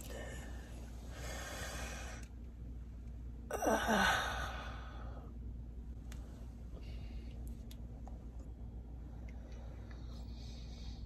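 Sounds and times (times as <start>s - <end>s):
woman breathing: 0.0s - 2.4s, 3.5s - 5.4s, 6.7s - 7.6s, 9.2s - 11.0s.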